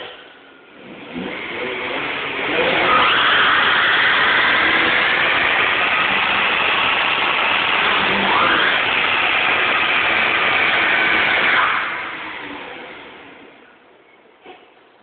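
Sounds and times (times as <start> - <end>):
car engine at high revs: 0.0 - 13.6.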